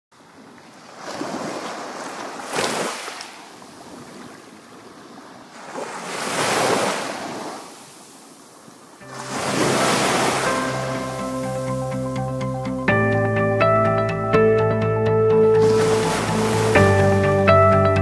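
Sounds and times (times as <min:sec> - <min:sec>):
sea waves breaking on beach: 0:00.2 - 0:11.6, 0:15.6 - 0:17.2.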